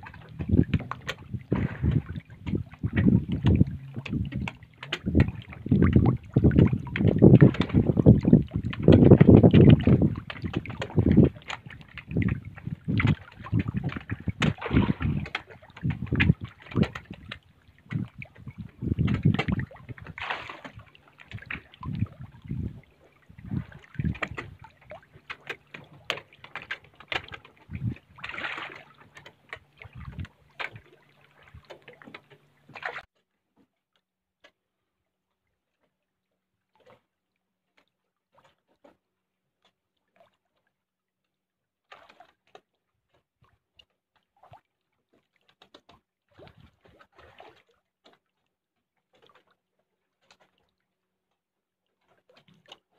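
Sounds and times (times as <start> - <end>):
fish splashing water: 0.0 - 33.1, 46.3 - 48.2.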